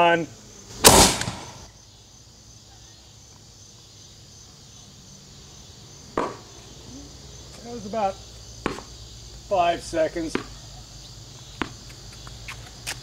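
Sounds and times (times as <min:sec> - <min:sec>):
crickets chirping: 0:00.0 - 0:13.0
sharp knock: 0:06.2 - 0:06.4.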